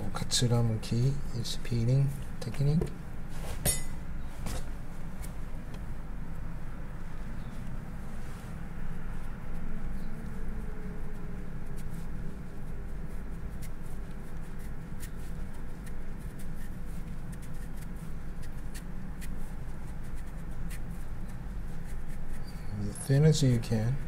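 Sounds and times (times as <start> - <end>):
steady low hum: 0.0 - 24.0
knife shaving radish: 8.9 - 24.0.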